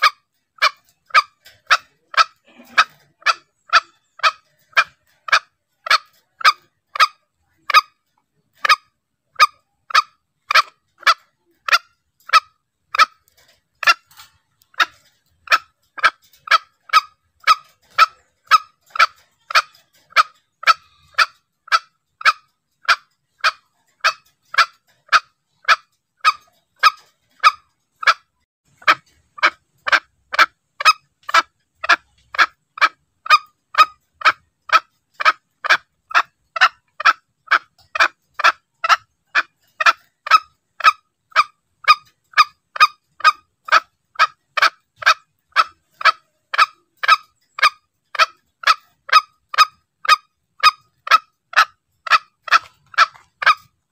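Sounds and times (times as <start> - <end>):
junglefowl calls: 0.0 - 53.9.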